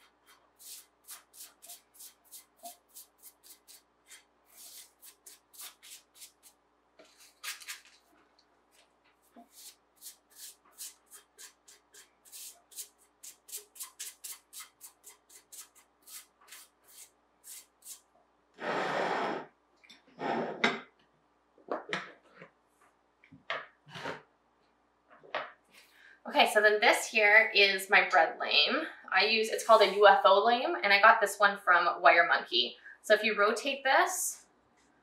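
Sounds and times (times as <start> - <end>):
pastry brush sweeping dough: 0.0 - 7.8, 9.4 - 18.0, 29.6 - 30.0.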